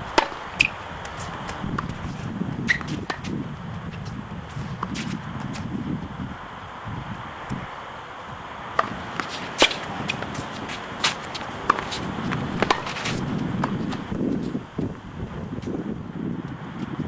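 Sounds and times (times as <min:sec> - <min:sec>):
wind rumble on microphone: 0:00.0 - 0:17.0
tennis ball hits and bounces: 0:00.1 - 0:05.7, 0:08.7 - 0:14.6.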